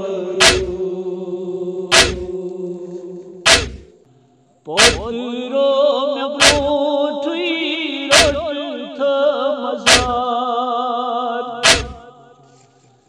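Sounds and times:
heavy chest-beating thumps: 0.0s - 0.8s, 1.9s - 2.4s, 3.5s - 3.9s, 4.8s - 5.1s, 6.4s - 6.8s, 8.1s - 8.5s, 9.9s - 10.3s, 11.6s - 12.0s
man chanting a lament: 0.0s - 4.0s, 4.7s - 12.6s.

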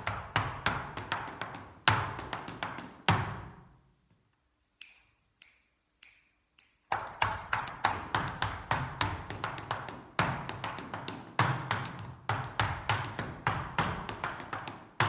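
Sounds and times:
dance shoes on wooden floor: 0.0s - 3.6s, 6.9s - 15.0s.

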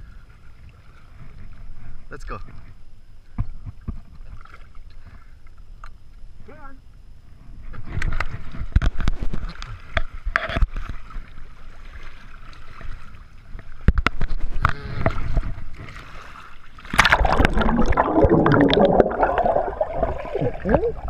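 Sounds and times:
water splashing and sloshing: 0.0s - 2.7s, 3.4s - 5.7s, 7.7s - 21.0s
underwater bubbling rush: 15.2s - 21.0s.

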